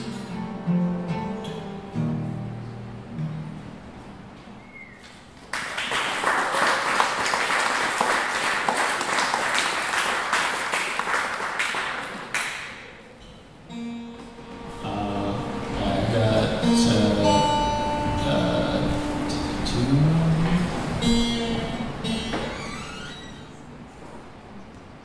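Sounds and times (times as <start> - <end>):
acoustic guitar: 0.0 - 6.0, 11.3 - 25.0
audience applauding: 5.4 - 12.9.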